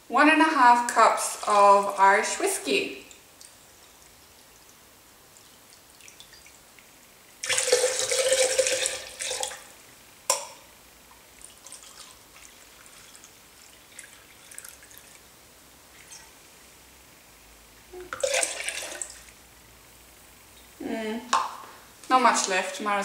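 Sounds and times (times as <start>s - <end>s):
faint liquid trickling: 1.2s - 21.4s
liquid splashing pour: 7.4s - 9.7s, 11.4s - 15.3s, 18.1s - 19.4s.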